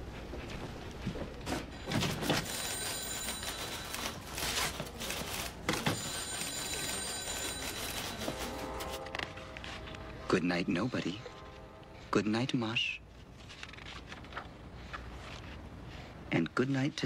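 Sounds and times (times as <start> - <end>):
knocks and footsteps: 0.0 - 6.5
telephone bell ringing: 1.9 - 9.0.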